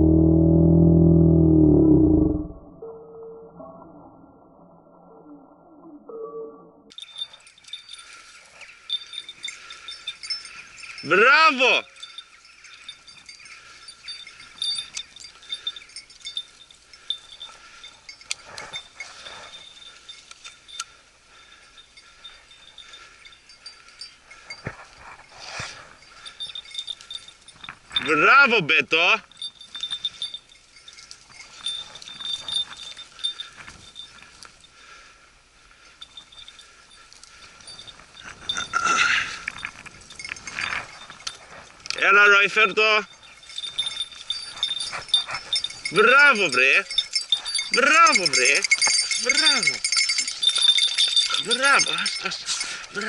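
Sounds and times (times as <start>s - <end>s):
dog bell jingling: 6.9s - 53.0s
rustling through brush: 29.3s - 34.8s.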